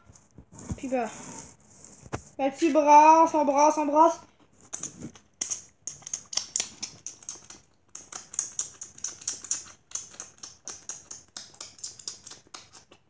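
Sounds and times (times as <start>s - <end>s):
wet chewing and crunching: 4.3s - 13.0s.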